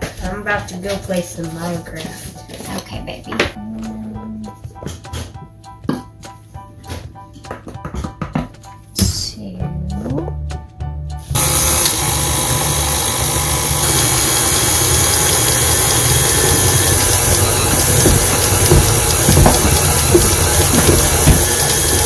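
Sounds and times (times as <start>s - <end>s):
stand mixer running: 11.3s - 22.0s
knocks: 16.4s - 22.0s.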